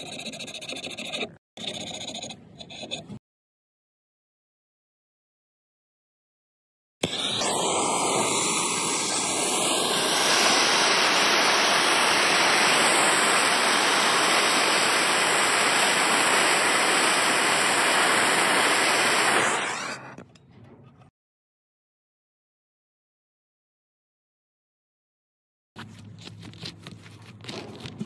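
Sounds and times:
gas torch hissing: 7.0 - 20.2.

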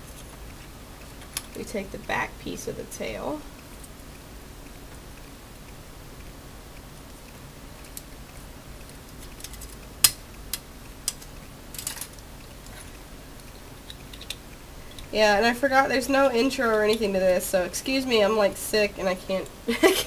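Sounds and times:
plastic parts clicking: 9.2 - 12.8, 13.4 - 15.1.

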